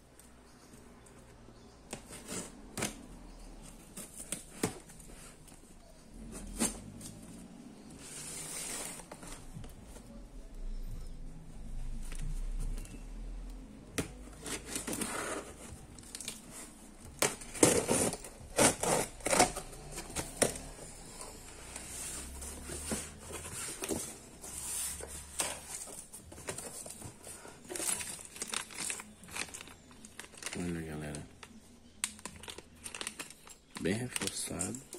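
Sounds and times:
cardboard rustling: 1.9s - 10.2s, 14.1s - 31.2s
packing tape ripping: 17.2s - 20.7s
plastic bag crinkling: 26.3s - 34.9s.

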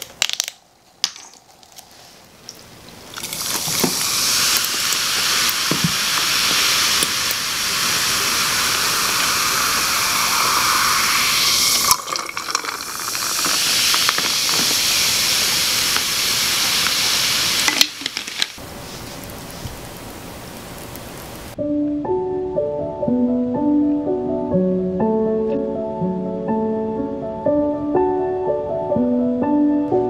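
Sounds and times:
carbonated drink pouring and fizzing: 3.0s - 19.3s
ice clinking in glass: 10.0s - 14.8s.

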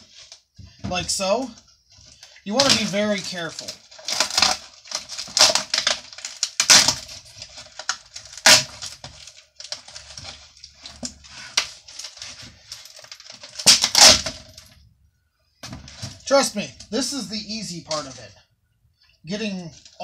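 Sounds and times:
panel covering tearing: 2.5s - 14.6s.

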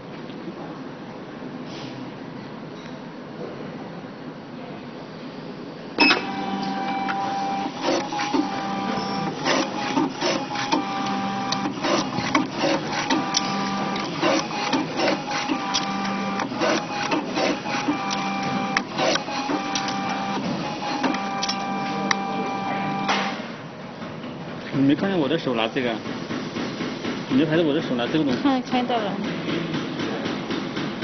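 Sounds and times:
card cutter motor whine: 6.0s - 23.4s
clicks of cards being cut: 7.8s - 22.3s.

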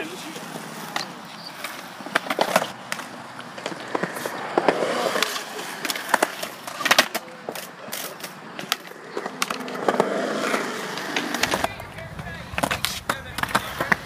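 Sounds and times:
skateboard wheels rumbling on concrete: 0.0s - 14.0s
skateboards clacking: 0.0s - 14.0s.

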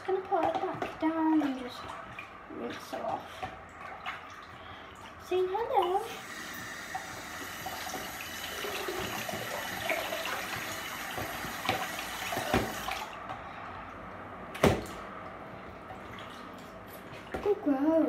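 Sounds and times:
tap running into sink: 6.5s - 13.0s.

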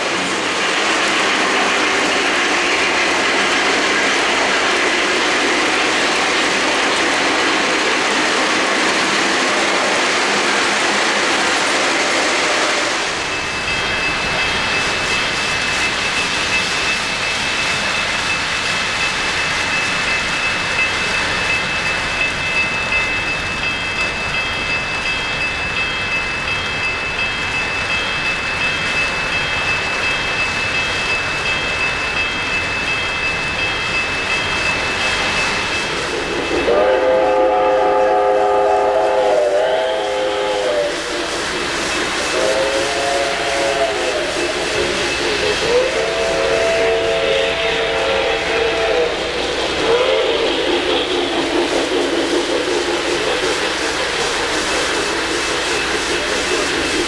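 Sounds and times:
model train rumbling on track: 0.0s - 57.0s
train chime horn: 36.4s - 41.4s, 42.2s - 51.1s.

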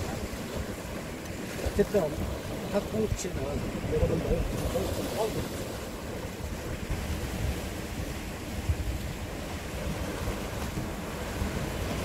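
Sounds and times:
sea waves breaking on rocks: 0.0s - 12.0s
wind buffeting microphone: 0.0s - 12.0s.

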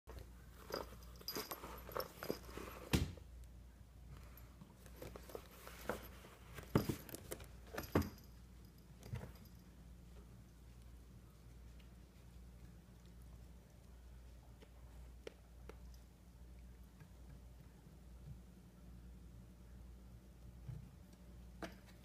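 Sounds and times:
light metallic jingles: 0.4s - 2.9s, 4.2s - 9.8s.

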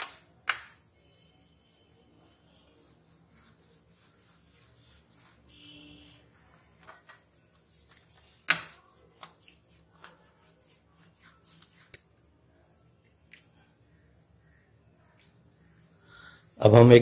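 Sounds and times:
rolling pin rolling dough: 0.0s - 12.0s.

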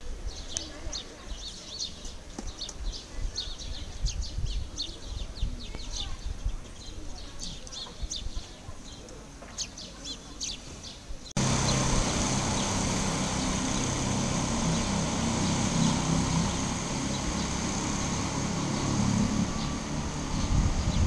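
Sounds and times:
birds chirping: 0.0s - 21.0s
electric train rumbling: 11.4s - 21.0s.

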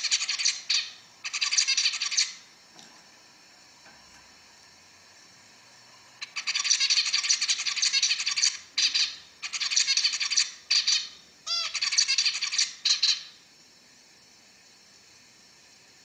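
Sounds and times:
finch singing buzzy phrases: 0.0s - 2.4s, 6.2s - 13.4s.

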